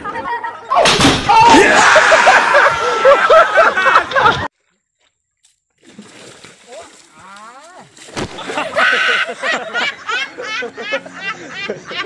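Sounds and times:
excited voices: 0.2s - 4.0s
water splashing: 4.5s - 9.4s.

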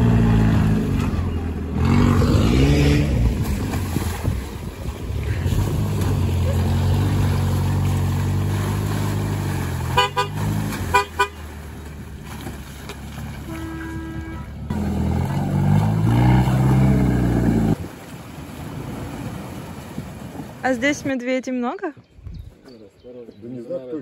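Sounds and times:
engine revving: 0.0s - 3.8s, 5.3s - 11.8s, 14.3s - 17.8s
off-road engines running under load: 0.0s - 17.8s
car horn toots: 9.9s - 11.4s, 13.5s - 14.7s.

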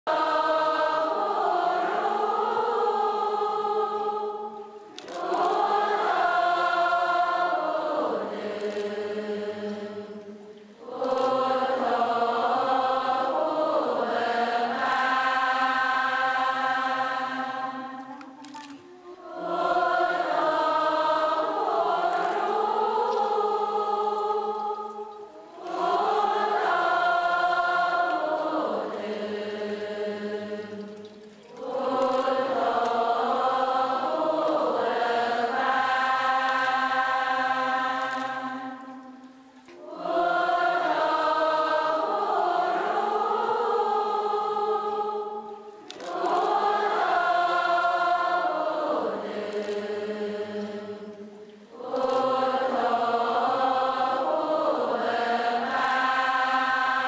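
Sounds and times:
group of voices chanting: 19.1s - 24.9s, 25.6s - 30.8s, 39.8s - 45.4s.

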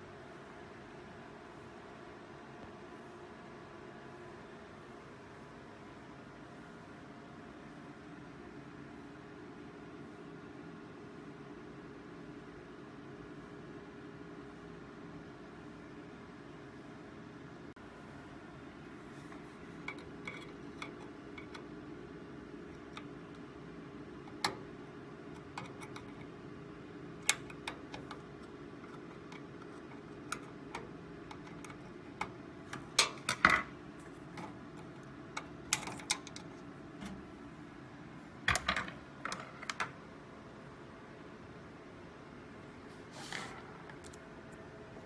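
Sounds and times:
screwdriver metallic clicks and scrapes: 19.8s - 21.6s.

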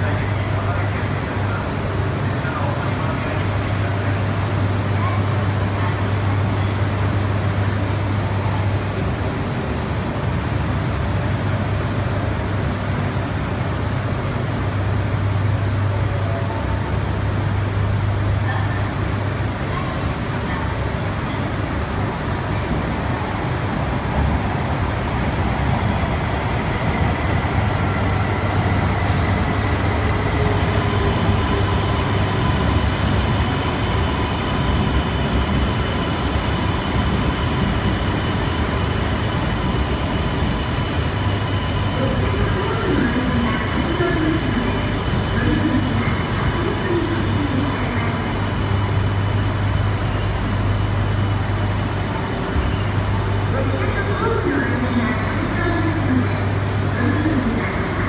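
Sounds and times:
train equipment humming: 0.0s - 58.0s.

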